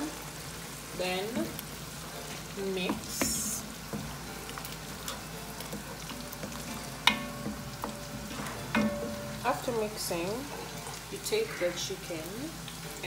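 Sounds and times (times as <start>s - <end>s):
sauce sizzling in pot: 0.0s - 13.0s
spoon knocking ringing pot: 6.4s - 9.4s.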